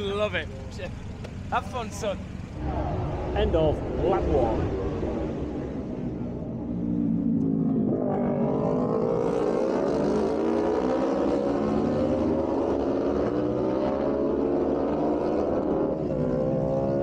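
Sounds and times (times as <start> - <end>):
racing motorcycles accelerating: 2.5 - 17.0.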